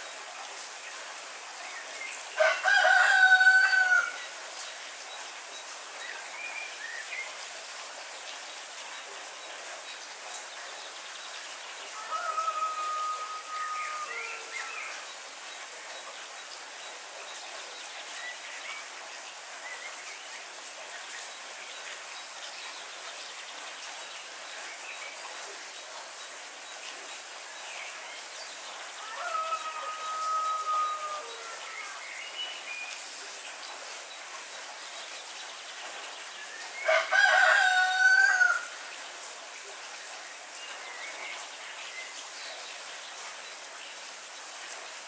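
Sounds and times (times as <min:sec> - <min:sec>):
heavy rain: 0:00.0 - 0:45.0
rooster crowing: 0:02.4 - 0:04.2, 0:12.0 - 0:14.7, 0:29.0 - 0:31.8, 0:36.8 - 0:38.7.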